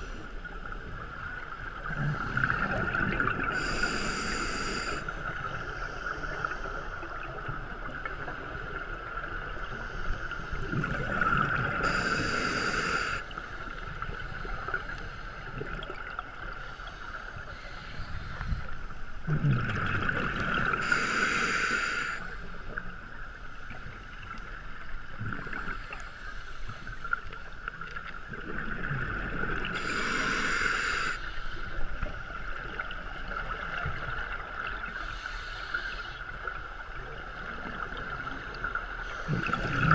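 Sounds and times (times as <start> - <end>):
regulator bubbles gurgling: 0.0 - 5.8, 10.5 - 12.7, 19.2 - 21.2, 28.0 - 30.1, 36.6 - 39.9.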